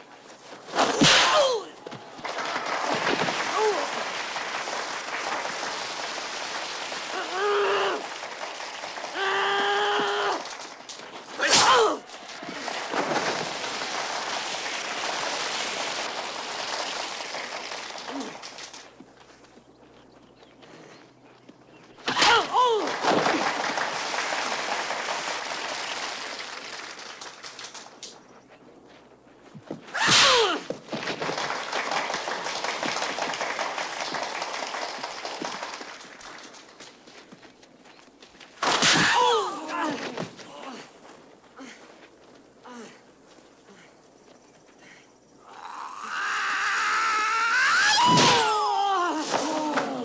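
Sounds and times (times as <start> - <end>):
crowd clapping: 1.5 - 19.4, 22.5 - 28.2, 30.7 - 38.5
person yelling sharply: 11.4 - 12.0.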